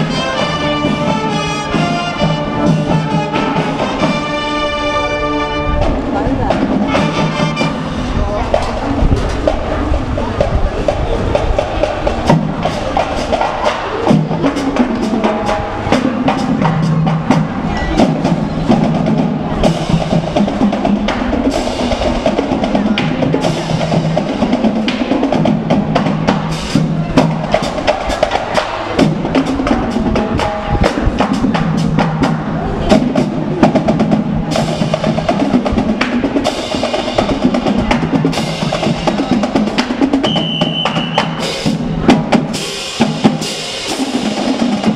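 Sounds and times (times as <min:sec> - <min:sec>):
brass instruments playing a tune: 0:00.0 - 0:08.9, 0:12.2 - 0:44.9
snare and bass drums beating: 0:10.4 - 0:44.9.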